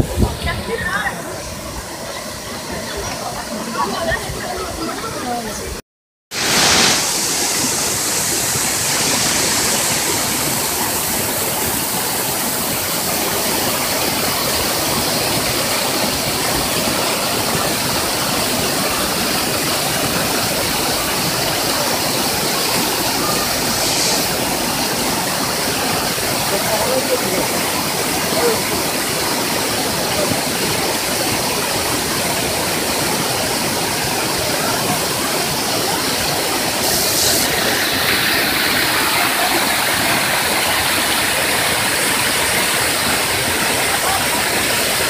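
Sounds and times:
waterfall rushing over boulders: 0.0 - 45.0.

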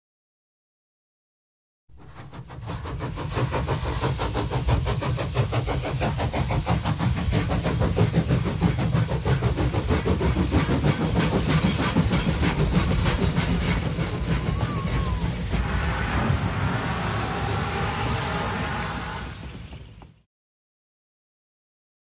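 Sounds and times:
car engine and tyre noise: 15.5 - 20.2.

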